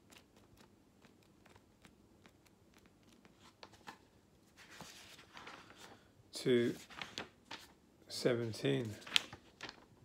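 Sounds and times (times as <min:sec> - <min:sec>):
soft rustle: 0:02.8 - 0:07.8.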